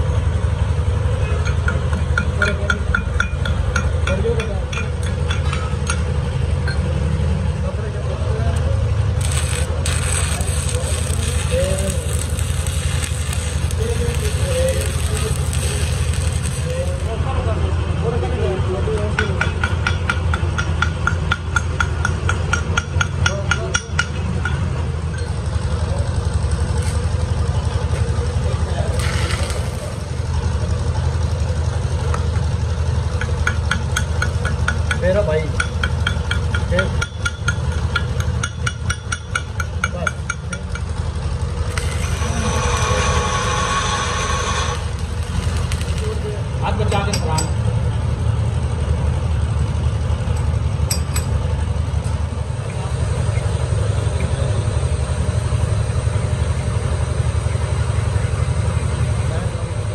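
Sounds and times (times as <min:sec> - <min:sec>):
machine hum: 0:09.1 - 0:17.6, 0:41.6 - 0:46.9
arc welding crackling hiss: 0:09.2 - 0:17.3, 0:28.9 - 0:30.5, 0:41.7 - 0:46.9
metal lathe running: 0:09.2 - 0:17.3, 0:28.9 - 0:30.8, 0:41.7 - 0:46.9.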